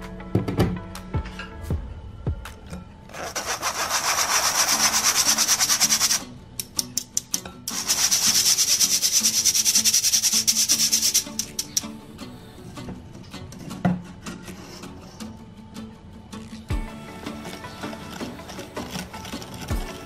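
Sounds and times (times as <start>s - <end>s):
whisk scraping metal sieve: 3.1s - 6.2s, 7.7s - 11.8s.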